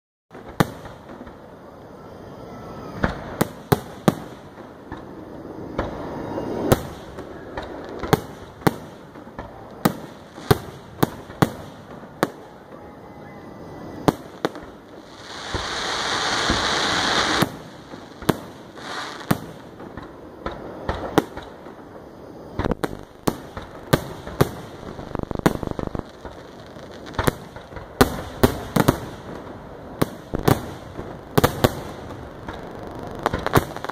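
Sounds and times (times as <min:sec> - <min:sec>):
fireworks bangs and booms: 0:00.3 - 0:33.9
loud hissing rush: 0:11.6 - 0:33.9.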